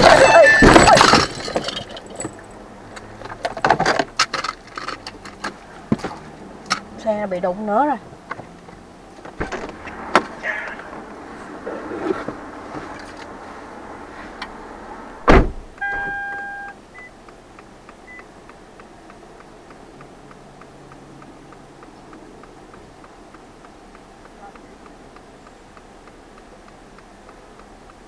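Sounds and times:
knocks and rustles: 0.0 - 6.9, 8.2 - 10.4, 11.6 - 13.3
loud thud: 15.2 - 15.7
two-tone car chime: 15.8 - 17.1
flasher ticking: 16.7 - 28.0.

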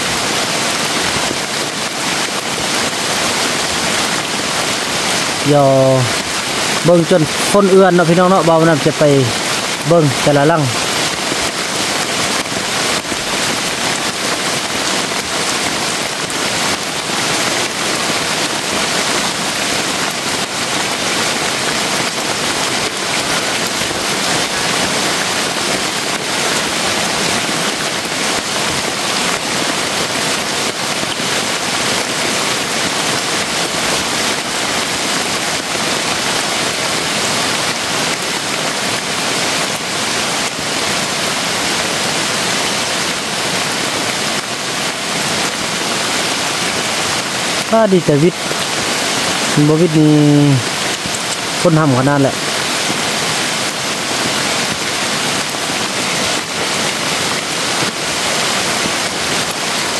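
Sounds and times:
rain falling on bamboo and thatch: 0.0 - 59.9.

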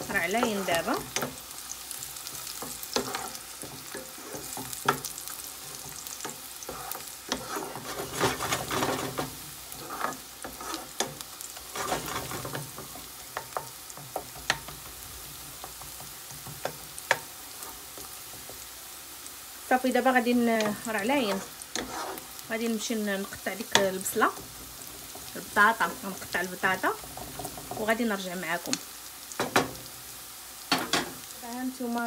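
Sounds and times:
wooden spatula scraping a pan: 0.0 - 18.7, 20.0 - 28.2
onions sizzling in hot oil: 0.0 - 32.0.

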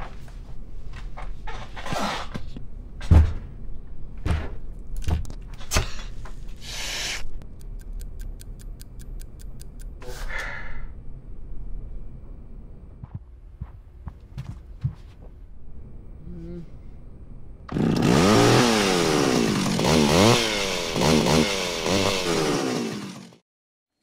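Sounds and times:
fast even ticking: 7.4 - 10.0.

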